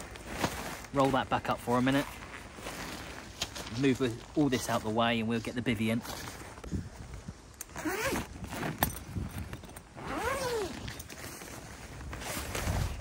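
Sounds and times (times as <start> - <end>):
fabric rustling: 0.0 - 7.0, 7.7 - 13.0
zipper pulled open: 7.6 - 13.0.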